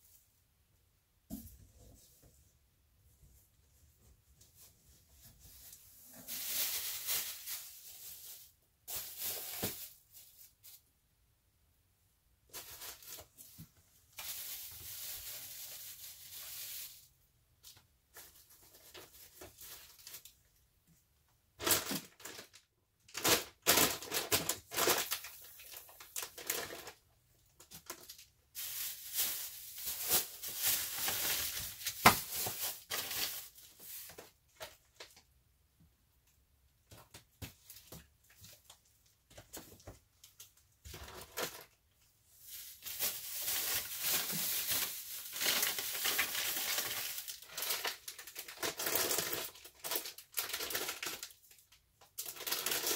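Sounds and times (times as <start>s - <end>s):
plastic bags crinkling: 5.6s - 10.9s, 12.5s - 17.2s, 18.2s - 20.4s, 21.6s - 35.2s, 39.4s - 52.9s.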